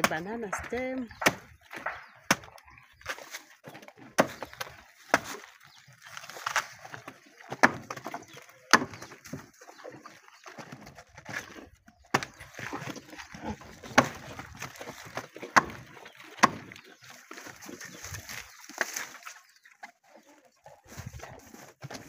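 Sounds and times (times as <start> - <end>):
machete chopping on wood: 0.0 - 3.3, 4.0 - 5.5, 7.5 - 9.1, 12.1 - 12.8, 13.8 - 15.8, 16.4 - 16.7
calves chewing: 0.0 - 22.0.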